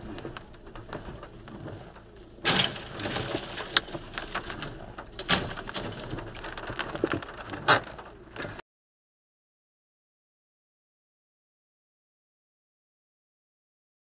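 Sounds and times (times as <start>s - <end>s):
debris clattering and scraping: 0.0s - 8.6s.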